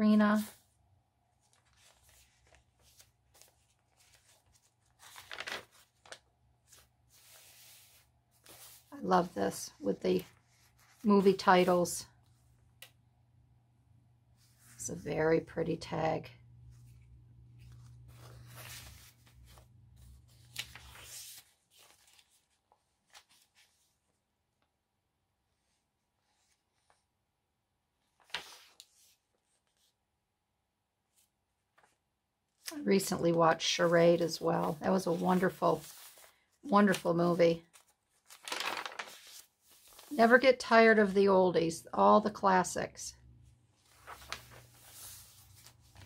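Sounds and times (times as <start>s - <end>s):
paper pages rustling: 1.4s - 13.0s, 16.7s - 24.1s, 28.1s - 30.0s, 31.1s - 32.0s, 33.2s - 41.2s, 43.8s - 46.0s.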